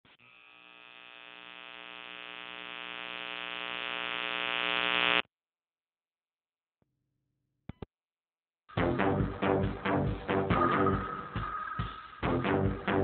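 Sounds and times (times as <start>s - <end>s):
buzzing electronic drone: 0.1s - 5.2s.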